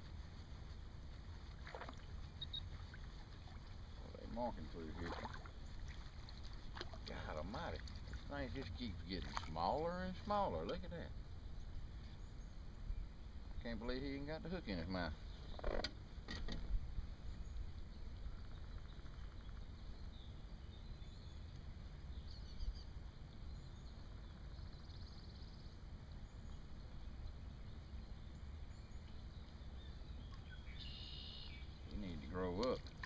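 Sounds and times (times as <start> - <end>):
high bird chirps: 2.3 - 2.8, 29.8 - 31.9.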